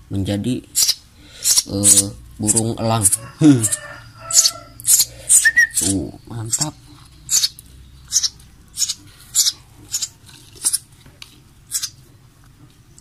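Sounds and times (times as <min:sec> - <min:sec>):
bird chick begging chirps: 0:00.8 - 0:10.8, 0:11.7 - 0:12.0.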